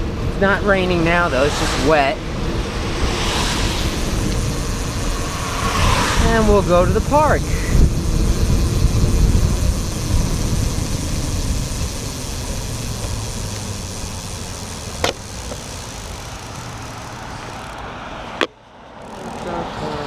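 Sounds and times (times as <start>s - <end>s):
wind on microphone: 0.8s - 14.3s
bicycle tyres hissing on wet asphalt: 1.2s - 18.3s.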